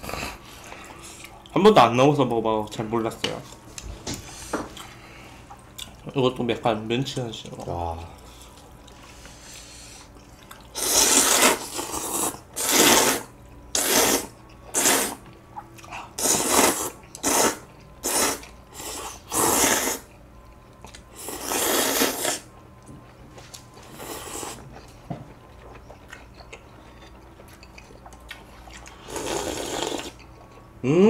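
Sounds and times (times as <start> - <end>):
people slurping noodles: 10.8 - 15.2, 16.2 - 20.1, 21.2 - 22.5, 29.0 - 30.2.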